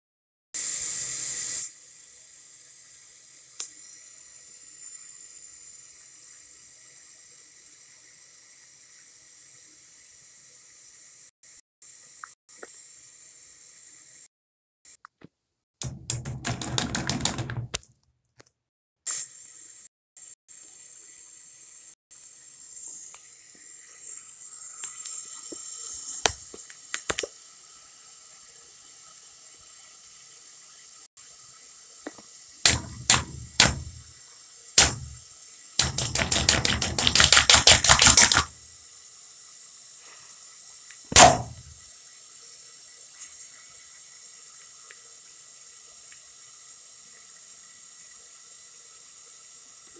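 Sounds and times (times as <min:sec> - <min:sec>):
water running from faucet: 0:15.8 - 0:17.8, 0:22.7 - 0:49.9
hand smacking water balloon: 0:32.7 - 0:34.0, 0:34.8 - 0:35.2, 0:35.8 - 0:38.5, 0:41.1 - 0:41.7.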